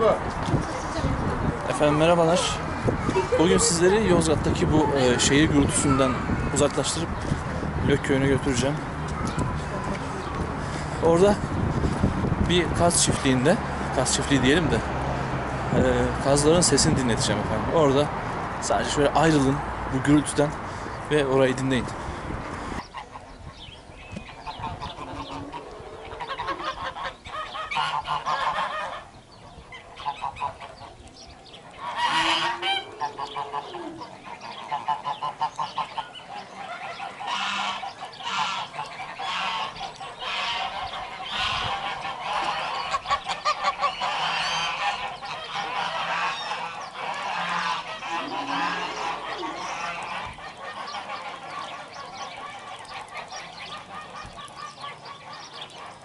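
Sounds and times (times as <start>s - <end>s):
geese honking: 24.3s - 29.1s, 29.7s - 56.0s.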